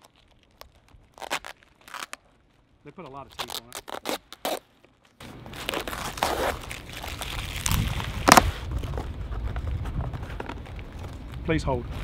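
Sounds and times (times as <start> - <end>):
cardboard tearing: 0.0 - 2.3, 3.2 - 4.8, 5.4 - 9.0
packing tape ripping: 0.0 - 2.5, 3.1 - 9.0.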